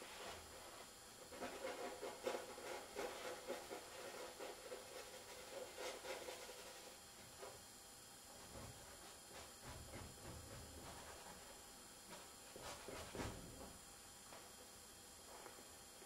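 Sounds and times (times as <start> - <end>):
painting tool scratching canvas: 0.0 - 7.0.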